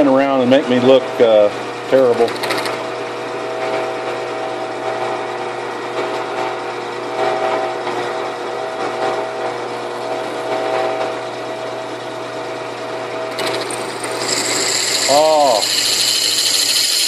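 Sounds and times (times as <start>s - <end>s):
drill press motor running: 2.1s - 3.0s, 9.6s - 17.0s
drill bit boring into steel: 13.3s - 17.0s.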